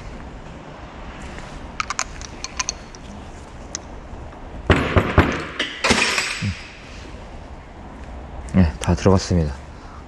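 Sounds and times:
metal parts knocking and scraping: 1.8s - 3.1s
small metal parts clicking: 1.8s - 3.1s.

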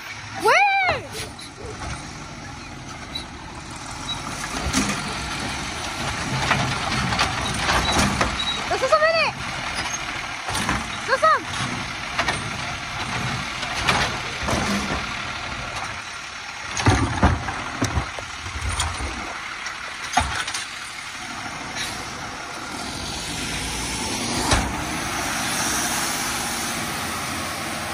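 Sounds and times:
diesel engine pulling away: 0.0s - 27.9s
garbage truck arm banging cart: 4.1s - 16.0s, 16.7s - 19.3s.

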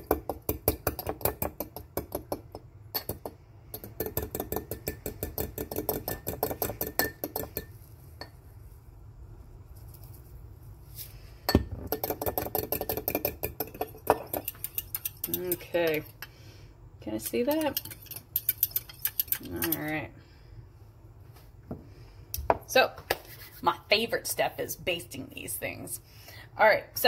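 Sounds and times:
fork clinking against glass bowl: 13.6s - 16.1s, 17.5s - 19.8s.

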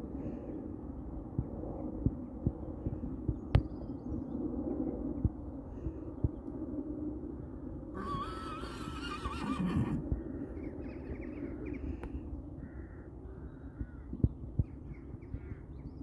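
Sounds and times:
steady low rumble: 0.0s - 8.0s, 9.7s - 16.0s
horse whinnying: 8.0s - 10.0s.

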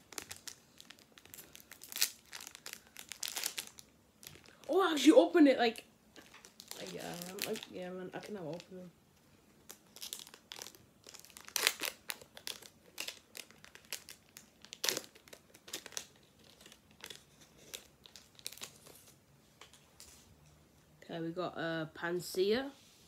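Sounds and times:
foil wrapper crinkling and tearing: 0.0s - 5.1s, 6.2s - 8.9s, 9.6s - 19.2s.

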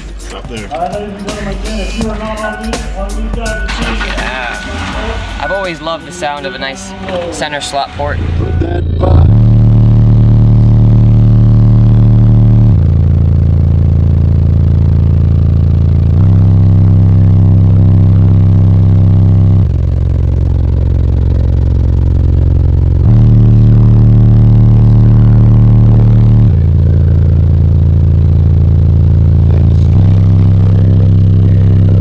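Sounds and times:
deep sustained bass notes: 0.0s - 32.0s.

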